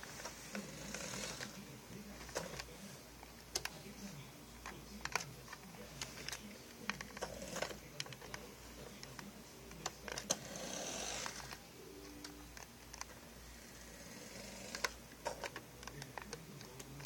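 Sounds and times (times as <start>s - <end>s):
handling clicks and rubbing: 4.6s - 10.4s, 11.1s - 13.2s, 14.7s - 17.0s.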